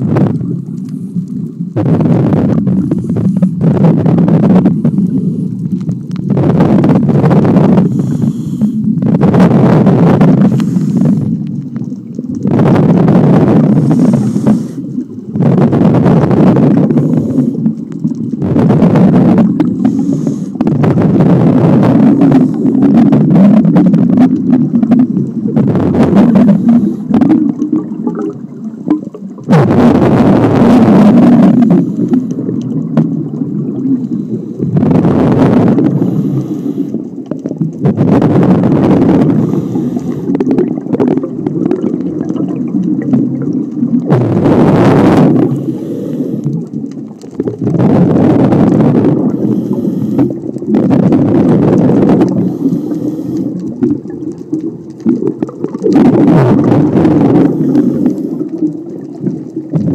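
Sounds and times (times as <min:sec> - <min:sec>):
exhaled bubbles rushing: 0:00.0 - 0:59.9
diver breathing through regulator: 0:02.8 - 0:03.8, 0:07.3 - 0:09.0, 0:10.4 - 0:11.5, 0:13.4 - 0:15.0, 0:16.6 - 0:17.8, 0:19.2 - 0:22.9, 0:26.0 - 0:27.4, 0:31.2 - 0:32.6, 0:34.0 - 0:37.2, 0:39.1 - 0:40.6, 0:44.6 - 0:46.8, 0:49.1 - 0:50.6, 0:52.0 - 0:53.8, 0:57.0 - 0:58.6.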